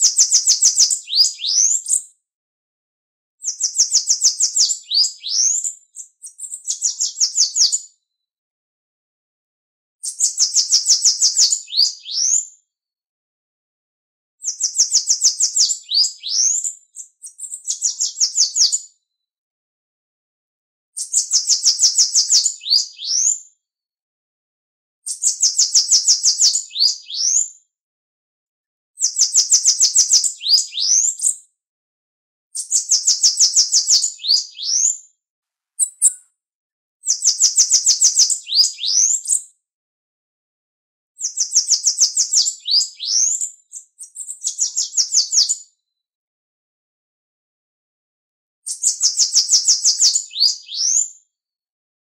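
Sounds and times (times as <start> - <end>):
bird singing high trilled songs: 0.0 - 2.1, 3.4 - 7.9, 10.0 - 12.5, 14.4 - 18.9, 21.0 - 23.4, 25.1 - 27.5, 29.0 - 31.4, 32.6 - 35.0, 35.8 - 36.3, 37.0 - 39.5, 41.2 - 45.7, 48.7 - 51.1.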